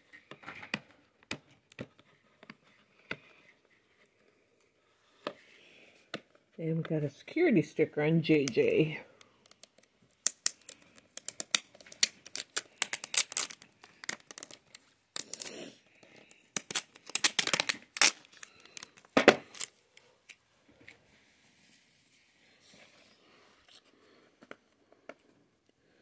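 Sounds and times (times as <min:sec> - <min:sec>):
sticker tearing: 0:10.2 - 0:14.6, 0:16.6 - 0:19.7.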